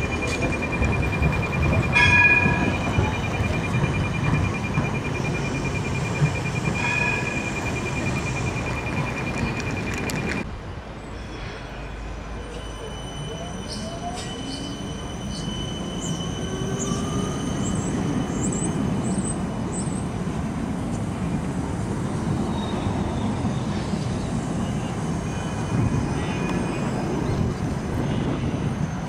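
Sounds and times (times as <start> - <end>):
high wheel squeals: 0.0 - 10.4, 11.2 - 19.4
tram wheels rumbling on rails: 0.0 - 29.0.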